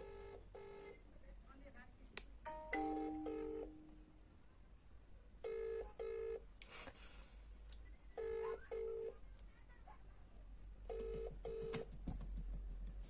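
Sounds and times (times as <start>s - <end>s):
phone ringback tone: 2.5s - 4.0s.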